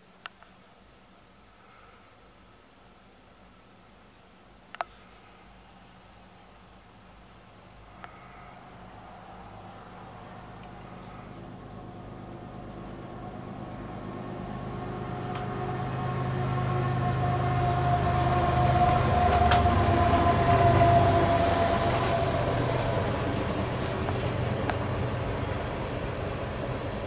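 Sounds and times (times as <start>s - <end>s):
diesel locomotive engine drone: 7.8s - 27.0s
train cars passing: 8.8s - 27.0s
steady high-pitched tone: 13.0s - 23.9s.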